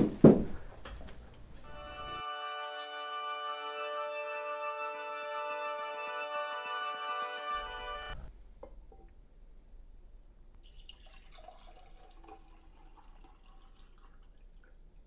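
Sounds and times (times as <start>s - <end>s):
water pouring into glass: 10.6s - 14.8s.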